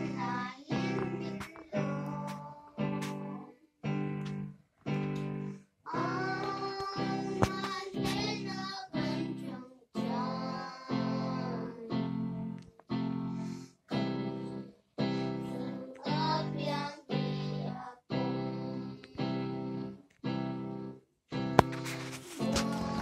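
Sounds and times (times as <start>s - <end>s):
children singing worship song: 0.0s - 3.6s, 5.9s - 12.6s, 15.2s - 19.9s, 22.0s - 23.0s
electronic keyboard chords: 0.0s - 17.5s, 18.1s - 23.0s.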